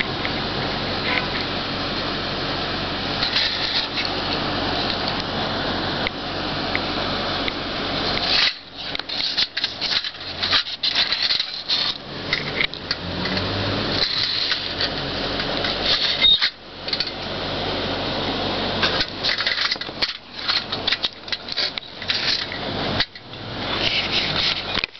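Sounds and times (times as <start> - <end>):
rubbing and scraping: 3.2 - 5.2, 8.1 - 17.2, 18.8 - 24.9.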